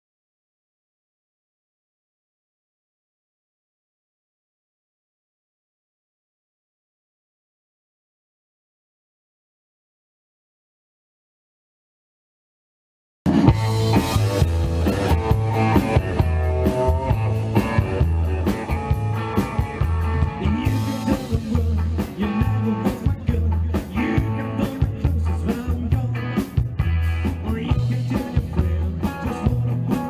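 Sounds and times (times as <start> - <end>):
drums: 13.3 - 30.0
electric guitar: 13.3 - 30.0
double bass walking line: 13.4 - 30.0
man singing: 19.8 - 30.0.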